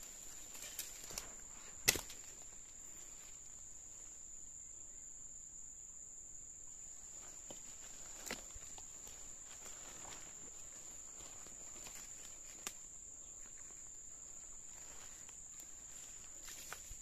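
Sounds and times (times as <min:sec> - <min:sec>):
insects droning: 0:00.0 - 0:17.0
sharp snaps: 0:01.8 - 0:02.3.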